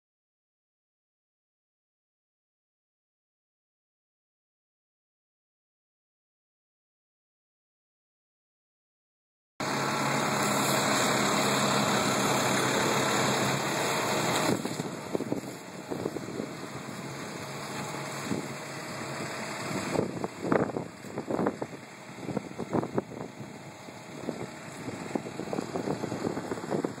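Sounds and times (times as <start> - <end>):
truck engine running: 9.6 - 27.0
gusty wind noise: 11.2 - 17.2, 17.8 - 27.0.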